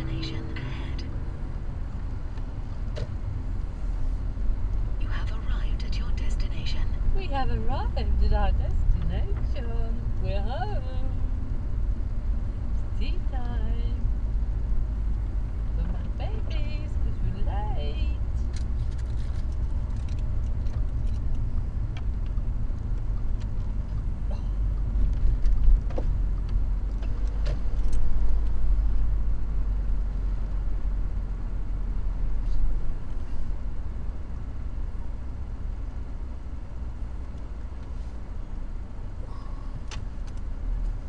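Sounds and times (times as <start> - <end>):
car engine and tyres rumbling: 0.0 - 41.0
small clicks and rattles: 18.4 - 24.1.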